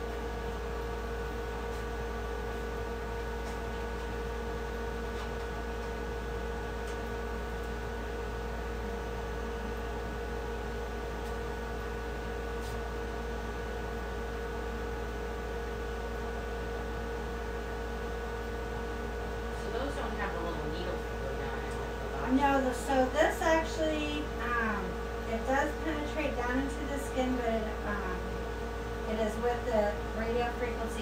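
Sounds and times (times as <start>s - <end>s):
electrical machine hum: 0.0s - 31.0s.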